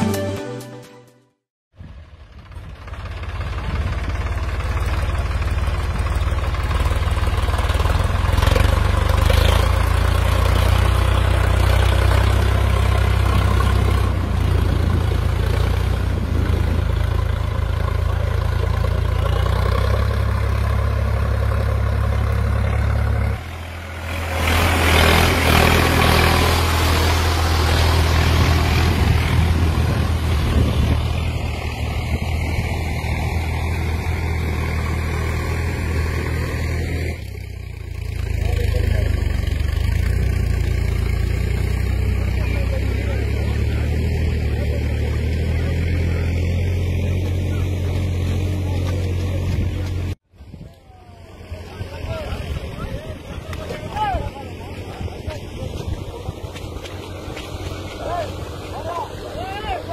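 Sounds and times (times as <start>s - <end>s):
tractor diesel engine droning: 1.8s - 59.9s.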